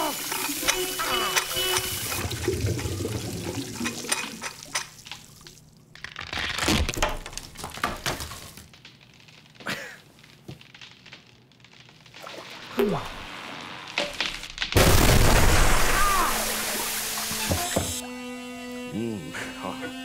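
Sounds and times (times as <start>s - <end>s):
water rushing through pipes: 0.0s - 5.6s, 15.2s - 18.0s
ceiling cracking: 0.0s - 18.0s.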